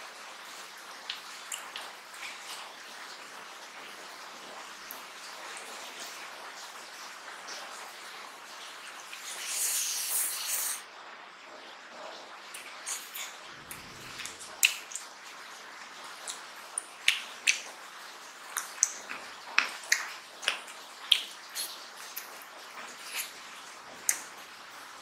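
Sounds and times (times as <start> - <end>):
person chewing with wet smacks: 16.2 - 17.8, 18.4 - 24.4.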